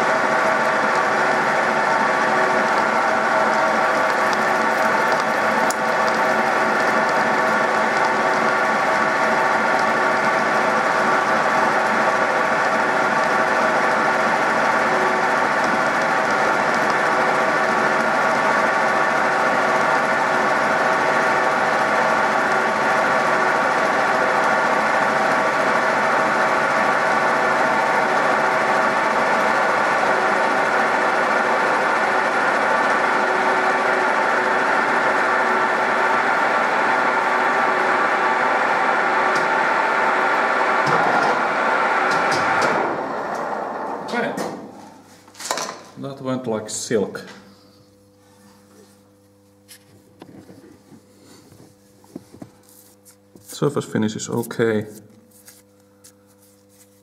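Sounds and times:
end mill cutting steel: 0:00.0 - 0:45.0.

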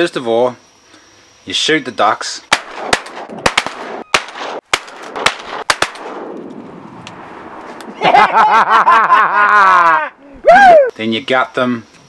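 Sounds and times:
shotgun firing: 0:02.5 - 0:06.4.

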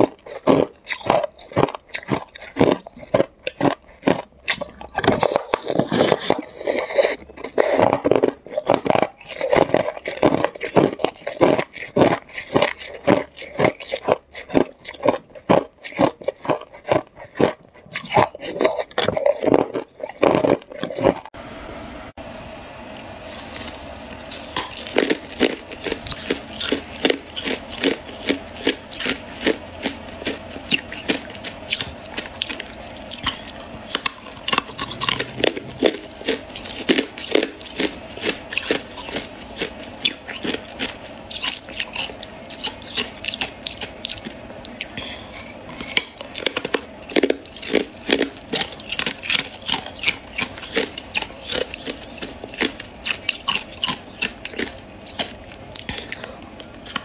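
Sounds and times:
ice crunching while chewed: 0:00.0 - 0:21.4, 0:22.8 - 0:57.0.

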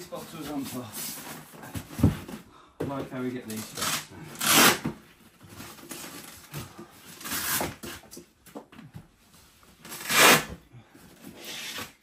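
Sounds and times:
straps scraping on foam: 0:03.5 - 0:04.9, 0:09.9 - 0:10.5.

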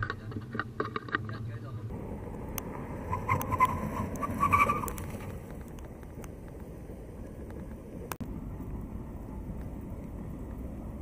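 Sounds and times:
low rumble: 0:01.5 - 0:11.0
tyres squealing: 0:03.1 - 0:05.4.

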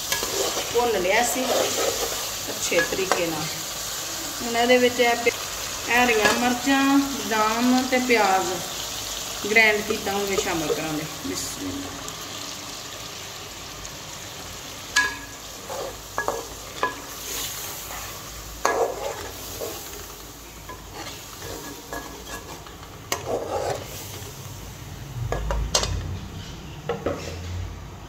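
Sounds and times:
metal spatula scraping pot: 0:00.0 - 0:03.3, 0:15.0 - 0:20.1, 0:20.7 - 0:24.3
frying sizzle: 0:00.0 - 0:27.7.

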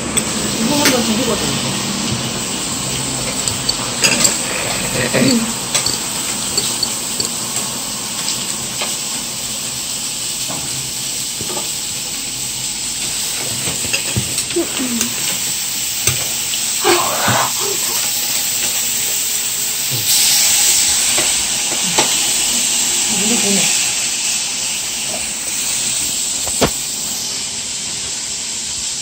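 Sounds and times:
meat sizzling on a griddle: 0:00.0 - 0:29.0
faint clinks: 0:05.2 - 0:07.4.

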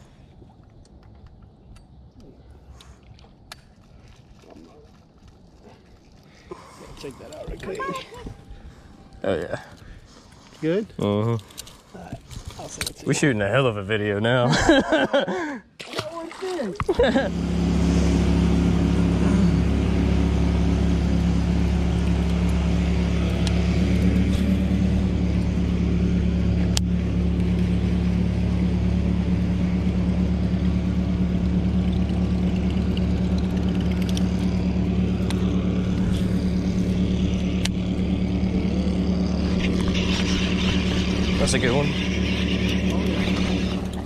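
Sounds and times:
outboard motor hum: 0:00.0 - 0:44.0
rushing water: 0:16.0 - 0:16.9.

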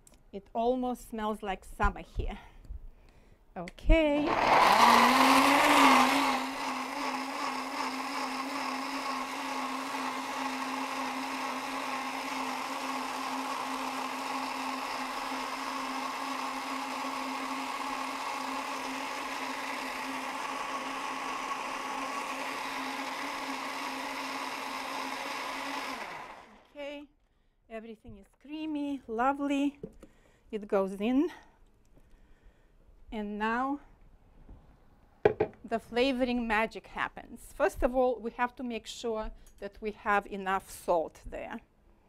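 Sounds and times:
blender running: 0:04.1 - 0:26.8
blender motor winding down: 0:04.2 - 0:26.8.

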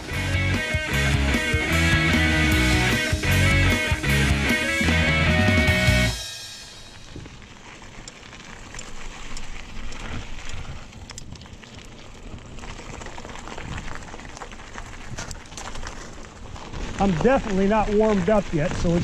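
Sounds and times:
bike tyres rolling on gravel: 0:00.0 - 0:19.0.

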